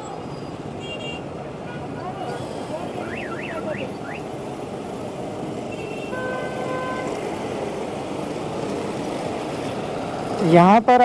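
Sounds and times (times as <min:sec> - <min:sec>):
city road traffic: 0:00.0 - 0:11.0
vehicle horn: 0:00.8 - 0:02.0, 0:05.7 - 0:07.4.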